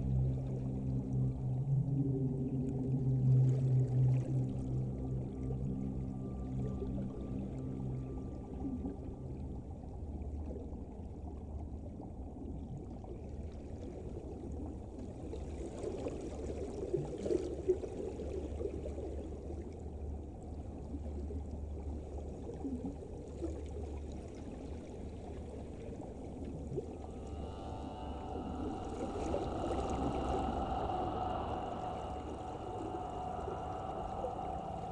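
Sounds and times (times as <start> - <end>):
water flowing and churning: 0.0 - 20.2, 21.0 - 34.9
low underwater rumble: 0.0 - 34.9.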